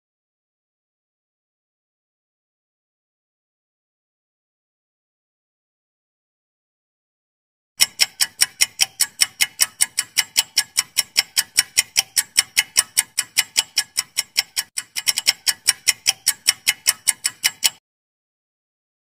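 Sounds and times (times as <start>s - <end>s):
clock ticking: 7.8s - 17.8s.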